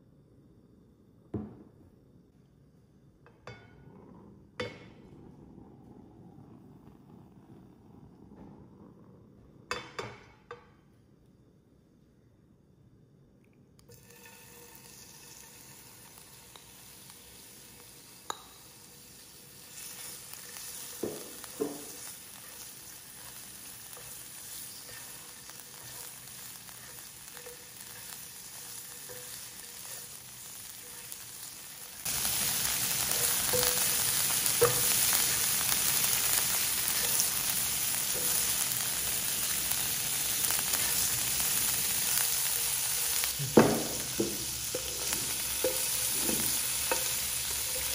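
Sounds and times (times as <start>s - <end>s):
shrimp sizzling in hot oil: 13.9s - 47.9s
spatula scraping in pan: 19.1s - 47.9s.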